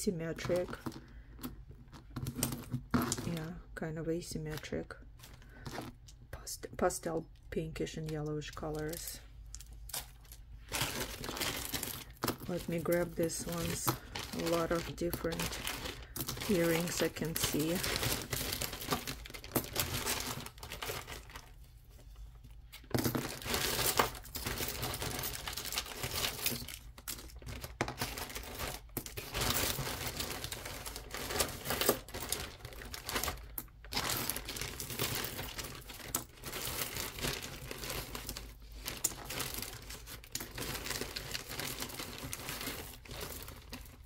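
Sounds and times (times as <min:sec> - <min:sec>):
plastic zip bag crinkling: 0:08.8 - 0:21.6, 0:22.8 - 0:44.0.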